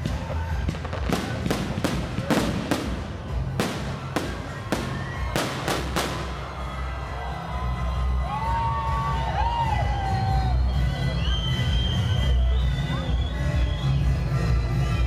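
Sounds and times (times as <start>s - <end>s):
fireworks bursting with sharp bangs: 0.0s - 6.9s.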